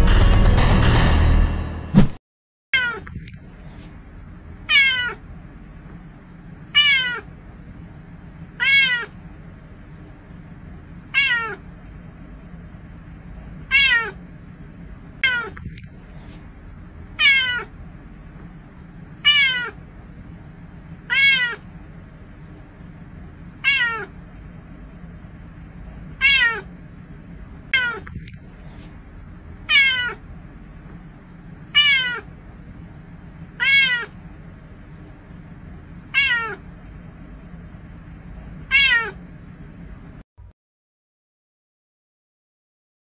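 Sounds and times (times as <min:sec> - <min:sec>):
steady low hum: 0:02.9 - 0:40.2
cat meowing: 0:04.7 - 0:05.2, 0:06.7 - 0:07.3, 0:08.6 - 0:09.2, 0:11.1 - 0:11.6, 0:13.7 - 0:14.2, 0:15.2 - 0:15.7, 0:17.2 - 0:17.7, 0:19.2 - 0:19.8, 0:21.1 - 0:21.7, 0:23.6 - 0:24.2, 0:26.2 - 0:26.7, 0:27.8 - 0:28.2, 0:29.7 - 0:30.2, 0:31.7 - 0:32.3, 0:33.6 - 0:34.2, 0:36.1 - 0:36.6, 0:38.6 - 0:39.2.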